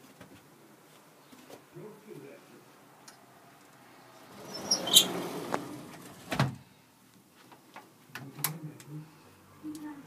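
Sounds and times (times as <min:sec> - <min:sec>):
door shutting with knock: 0:06.3 - 0:06.6.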